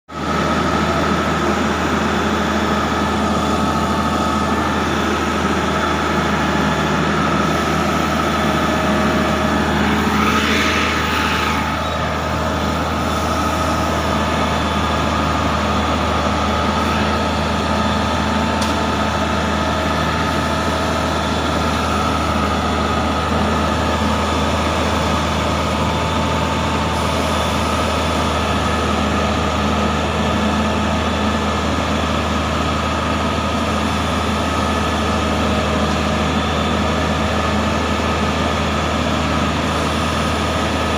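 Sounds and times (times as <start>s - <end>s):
heavy diesel engines running: 0.1s - 40.9s.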